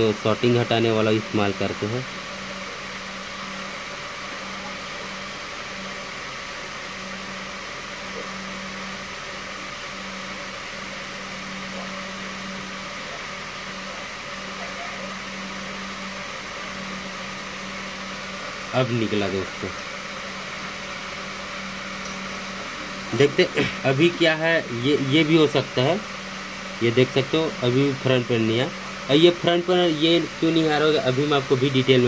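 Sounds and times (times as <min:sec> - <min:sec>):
machine hum: 0:00.0 - 0:32.0.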